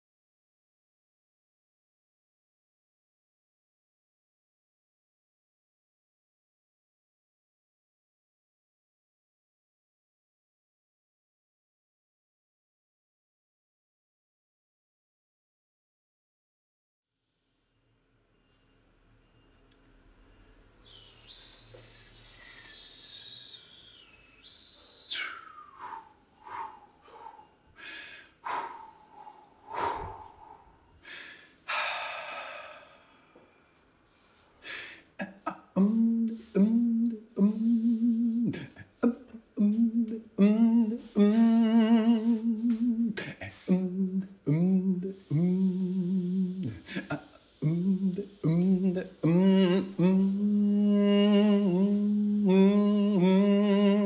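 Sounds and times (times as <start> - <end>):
person humming: 20.9 - 26.7, 35.2 - 54.0.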